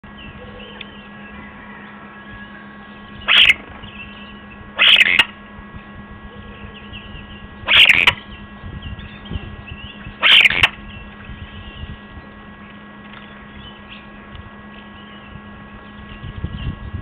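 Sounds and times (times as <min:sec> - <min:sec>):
steady electronic hum: 0:00.0 - 0:17.0
faint bird whistles and chatter: 0:00.1 - 0:05.3, 0:06.3 - 0:12.0
starling harsh call: 0:01.3 - 0:03.7, 0:04.7 - 0:05.4, 0:07.6 - 0:08.4, 0:10.1 - 0:10.8.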